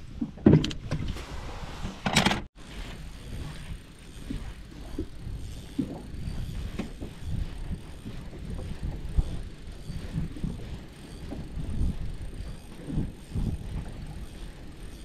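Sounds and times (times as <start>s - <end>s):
wind on microphone: 0.0s - 15.0s
fishing reel cranking: 2.7s - 15.0s.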